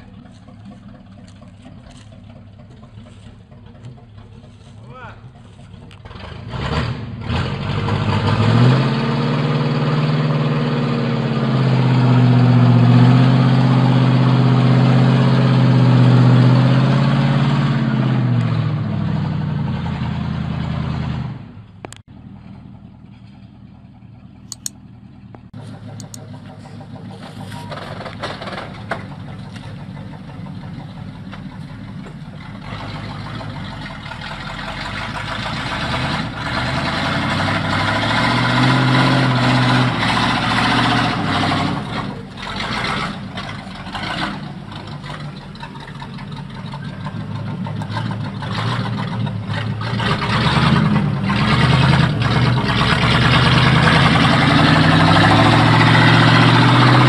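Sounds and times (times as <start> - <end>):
truck engine idling: 0.0 - 6.6, 21.5 - 57.0
truck engine revving: 0.0 - 57.0
sharp clicks: 24.4 - 24.8, 25.9 - 26.3.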